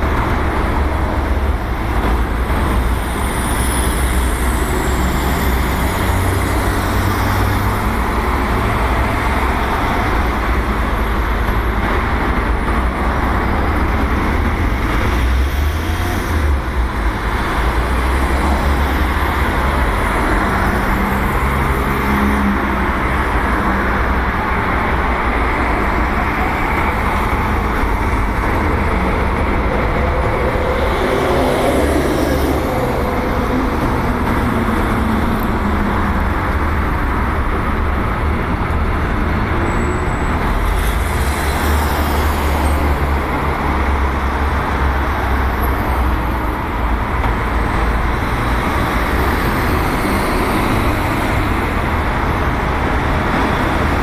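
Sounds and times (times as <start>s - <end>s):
road traffic noise: 0.0s - 54.0s.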